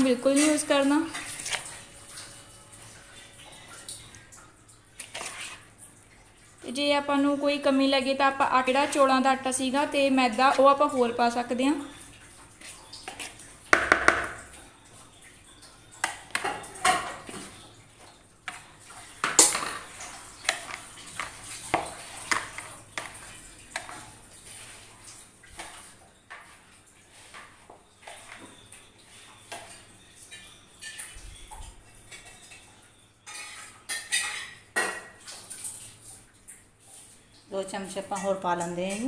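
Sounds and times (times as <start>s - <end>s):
spoon knocking plastic bowl: 13.7s - 14.5s.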